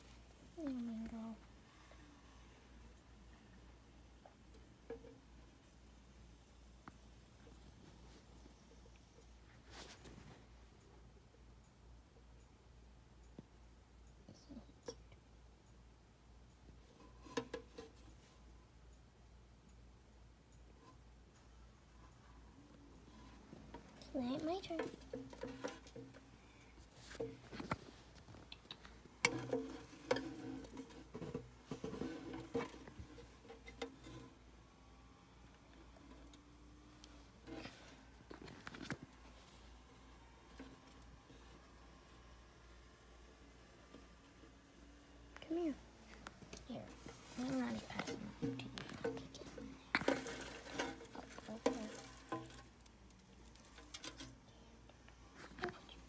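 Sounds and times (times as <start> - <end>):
dry moss rustling and crackling: 46.1 - 54.4.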